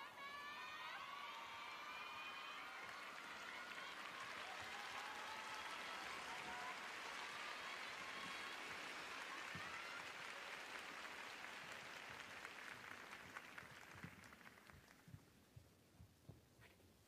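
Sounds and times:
crowd applauding: 0.0 - 15.2.

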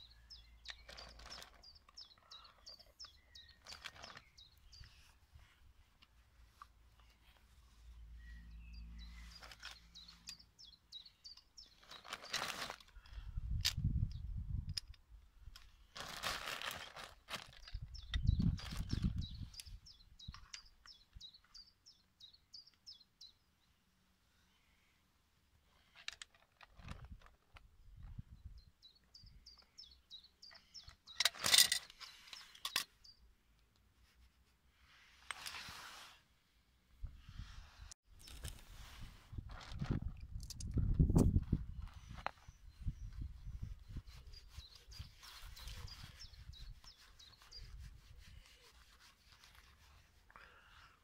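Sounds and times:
bird chirping: 0.0 - 5.6, 6.6 - 13.0, 17.5 - 23.8, 28.0 - 33.3, 41.6 - 49.1
hands rubbing hemp on pipe: 34.0 - 36.2, 43.2 - 50.3.

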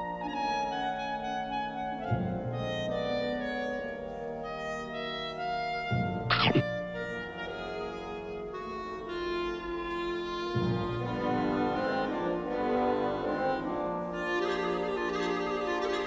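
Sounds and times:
orchestral music: 6.3 - 16.0.

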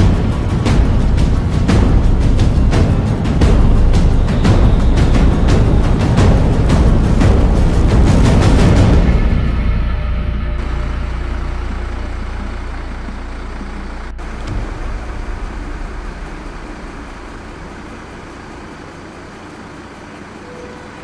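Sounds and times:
deep low rumble: 0.0 - 20.3
vehicle engines running: 0.0 - 21.0.

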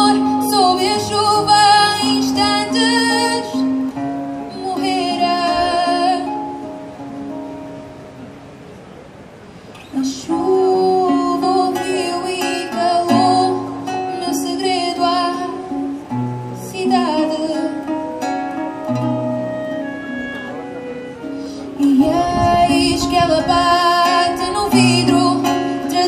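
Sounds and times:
woman singing with vibrato: 0.0 - 6.7, 9.9 - 26.0
classical guitar: 0.0 - 26.0
clarinet: 17.8 - 25.7.

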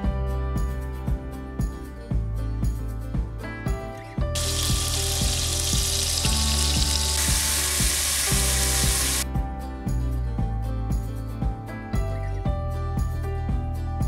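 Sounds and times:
background music with steady beat: 0.0 - 14.0
butter sizzling in a pot: 4.4 - 9.2.

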